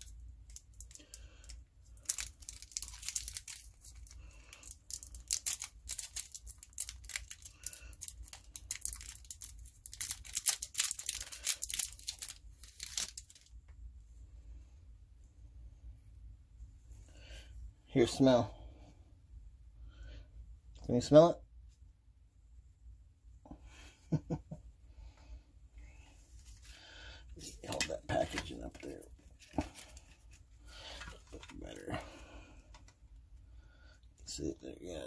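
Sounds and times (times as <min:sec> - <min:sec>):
cellophane wrapper crinkling: 0:00.0 - 0:13.5, 0:27.7 - 0:31.9.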